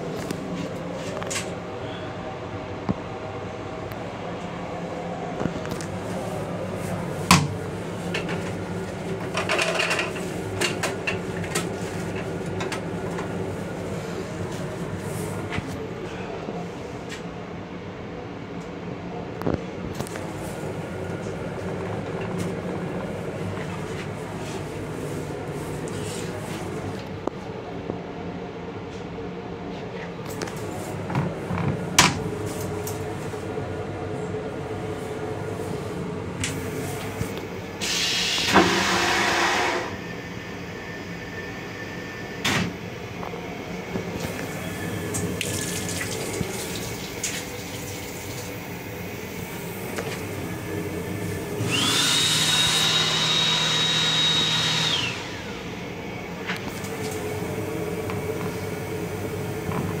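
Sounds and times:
railcar hum: 0.0s - 52.0s, 54.9s - 60.0s
toilet flush with motor whine: 37.7s - 42.7s, 44.0s - 60.0s.

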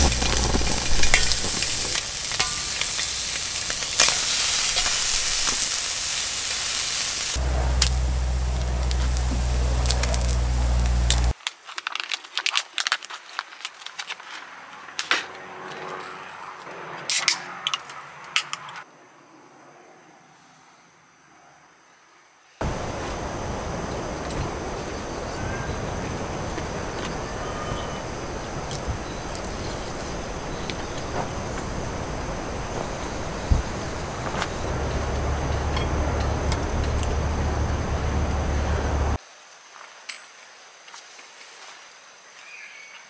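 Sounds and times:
food sizzling: 0.0s - 11.4s, 22.6s - 39.2s
pops and crackles: 0.0s - 14.4s, 34.2s - 35.9s.

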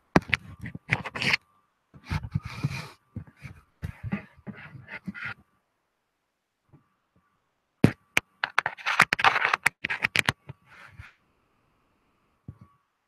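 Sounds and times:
sharp clicks and handling scrapes: 0.2s - 1.4s, 7.9s - 11.1s.

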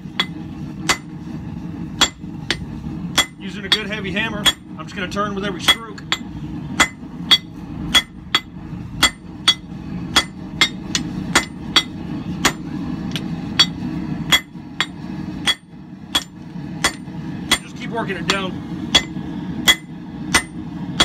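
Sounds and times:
low hum: 0.0s - 21.0s
hammer ringing on anvil: 5.6s - 12.6s.

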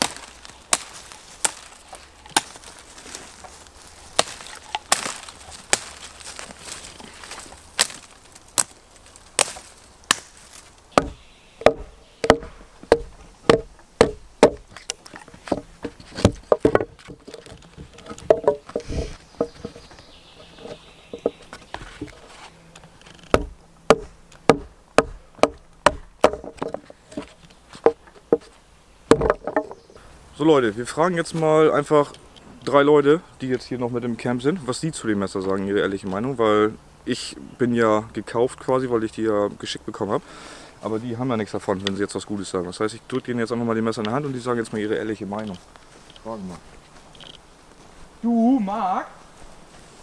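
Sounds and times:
knife chopping wood: 2.3s - 2.7s, 4.2s - 6.0s, 11.0s - 19.8s, 23.3s - 28.5s, 29.1s - 29.8s.

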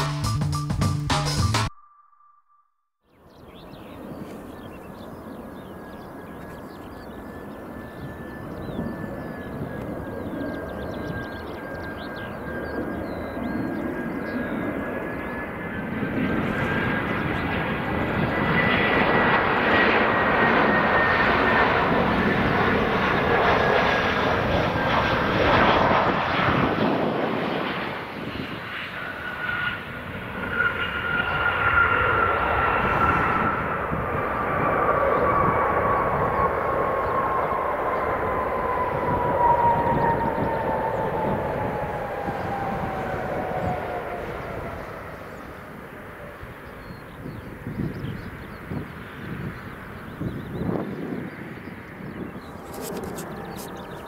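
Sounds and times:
jet engine whine: 3.2s - 54.0s
jet airliner landing: 3.3s - 54.0s.

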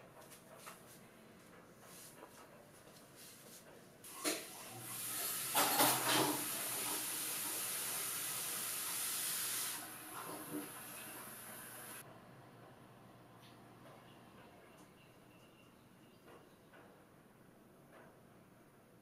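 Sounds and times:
water running from tap: 4.1s - 12.0s.

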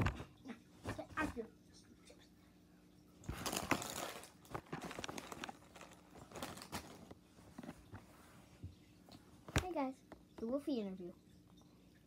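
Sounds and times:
faint steady hum: 0.0s - 12.0s
rustling and crinkling: 3.2s - 9.8s.

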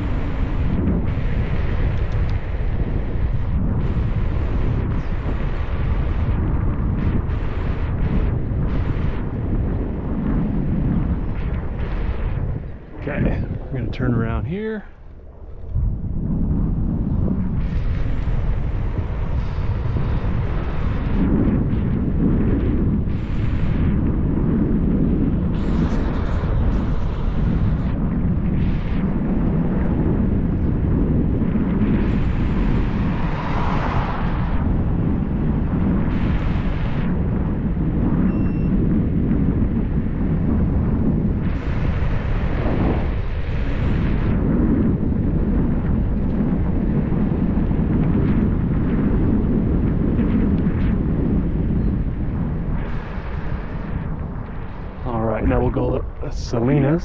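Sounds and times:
wind buffeting microphone: 0.0s - 57.0s
road noise: 32.0s - 35.6s.

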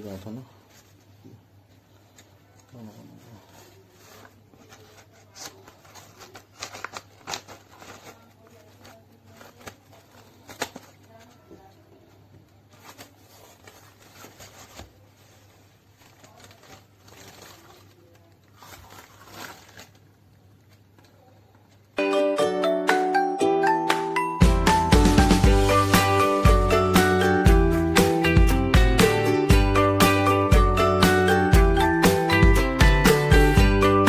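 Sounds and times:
cardboard rustling and crackling: 1.9s - 21.9s
chiming jingle: 22.0s - 27.7s.

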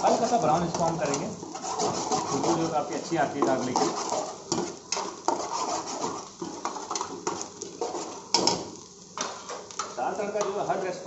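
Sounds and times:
ladle scraping metal frying pan: 0.0s - 8.6s
garlic sizzling in oil: 0.0s - 11.0s.

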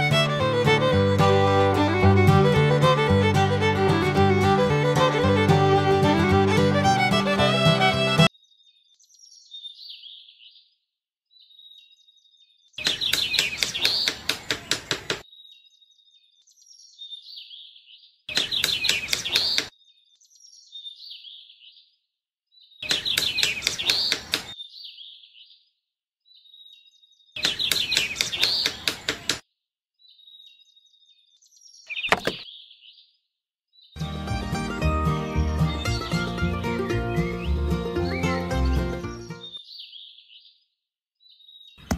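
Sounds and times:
birds chirping: 12.7s - 15.7s, 22.7s - 25.2s, 27.4s - 29.4s, 31.4s - 32.9s, 33.9s - 40.2s.

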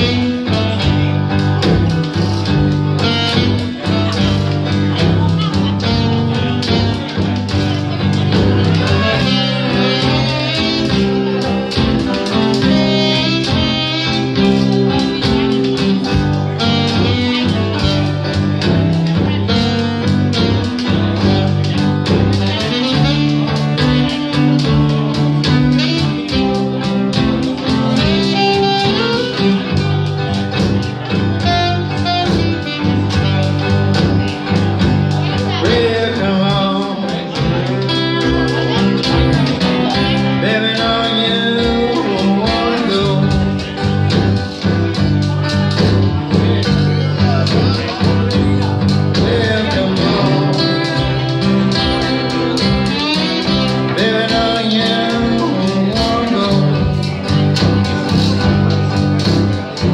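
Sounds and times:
alto saxophone melody: 0.0s - 59.9s
strummed guitars: 0.0s - 59.9s.

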